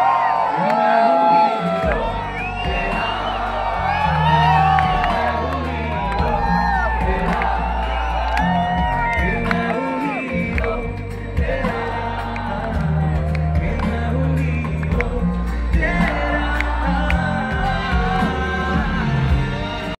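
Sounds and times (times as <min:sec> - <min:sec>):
man singing: 0:00.6 - 0:20.0
drums: 0:01.7 - 0:20.0
bass: 0:01.8 - 0:20.0.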